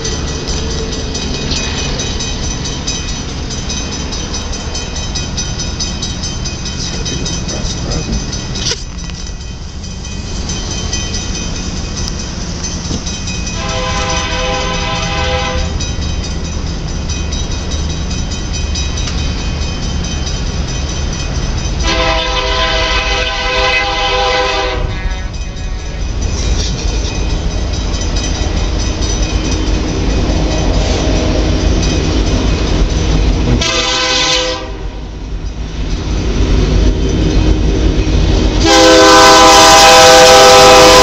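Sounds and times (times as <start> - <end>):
locomotive horn blast: 13.6 - 15.8, 21.8 - 25.4, 33.5 - 35.0, 38.6 - 41.0.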